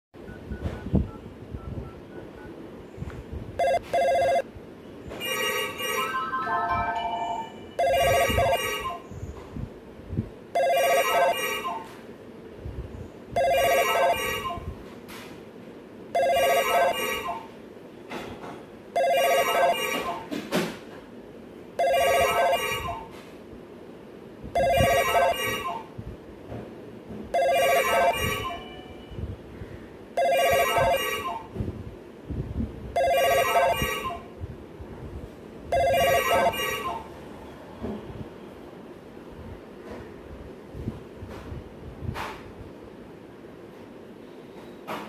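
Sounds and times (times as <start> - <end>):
telephone ringing with trilling tone: 3.6 - 4.5, 5.1 - 9.1, 10.5 - 12.0, 13.4 - 14.7, 16.1 - 17.6, 18.9 - 20.3, 21.8 - 23.2, 24.6 - 25.9, 27.3 - 29.2, 30.2 - 31.6, 33.0 - 34.4, 35.7 - 37.2.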